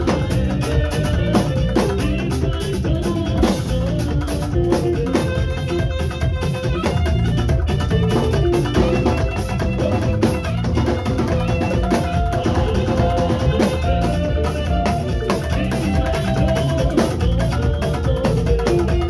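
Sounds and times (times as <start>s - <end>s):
bata drumming: 0.0s - 19.0s
saxophone melody: 0.0s - 19.0s.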